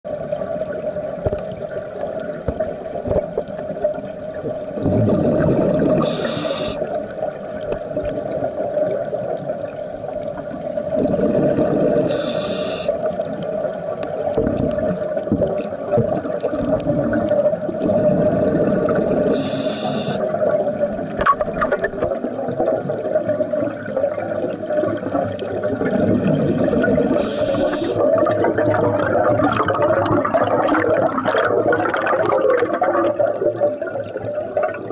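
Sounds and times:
exhaled air bubbling: 0.0 - 34.9
diver breathing through regulator: 6.0 - 6.8, 12.0 - 13.0, 19.3 - 20.2, 27.2 - 28.0.

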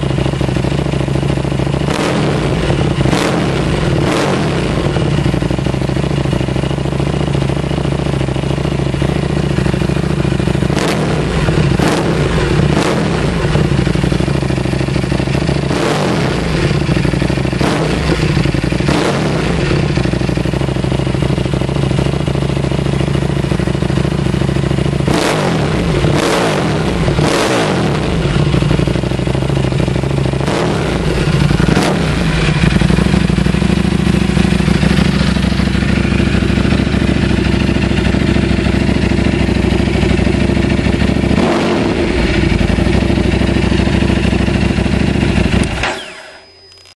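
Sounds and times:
motorcycle engine idling: 0.0 - 46.9
engine revving in throttle blips: 1.9 - 5.1, 10.7 - 13.8, 15.6 - 20.0, 25.0 - 29.0, 30.4 - 33.2, 41.2 - 43.3.

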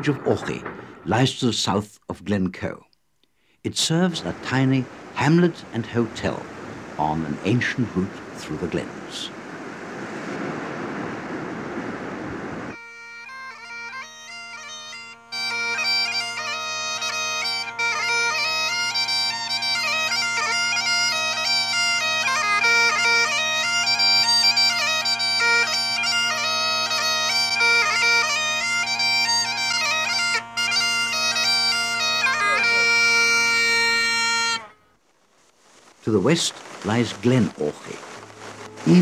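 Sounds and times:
bagpipes playing a tune: 12.7 - 34.9, 36.9 - 39.0.

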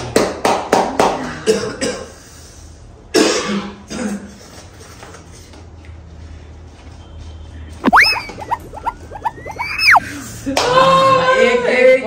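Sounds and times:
hand claps: 0.1 - 1.2.

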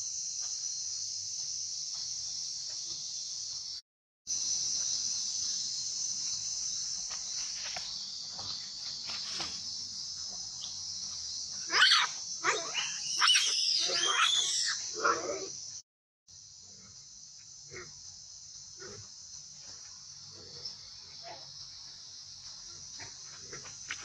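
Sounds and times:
high-pitched insect drone: 0.0 - 22.6
macaque squeals and screams: 11.6 - 15.5.

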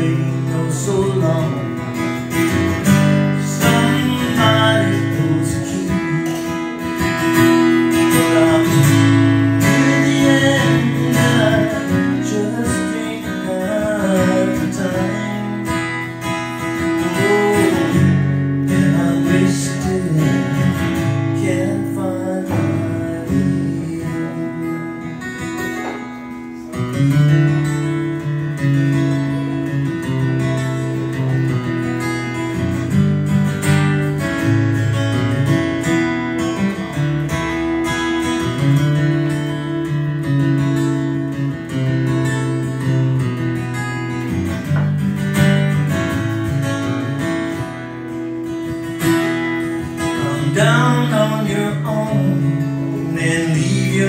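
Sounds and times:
man singing: 0.0 - 26.0, 49.6 - 54.0
acoustic guitar strummed and picked: 0.0 - 54.0.

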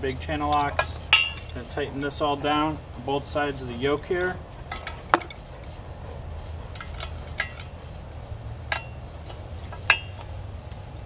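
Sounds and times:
wrench clinking on steel bolts: 0.0 - 2.3.

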